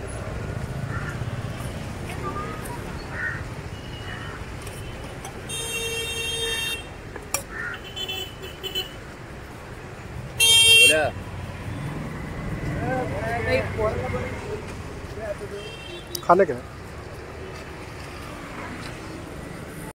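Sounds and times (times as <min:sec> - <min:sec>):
street traffic: 0:00.0 - 0:19.9
vehicle horn honking: 0:04.9 - 0:06.9, 0:10.4 - 0:11.1, 0:15.5 - 0:16.2.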